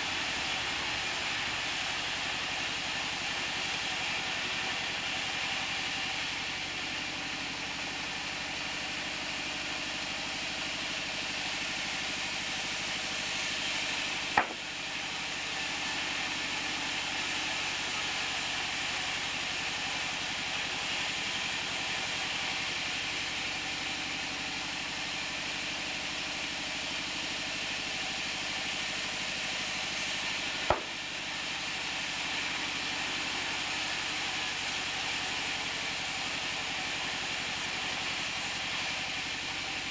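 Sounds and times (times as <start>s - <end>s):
band saw blade cutting wood: 14.3s - 14.8s, 30.7s - 31.0s
sharp knocks: 14.4s - 14.6s.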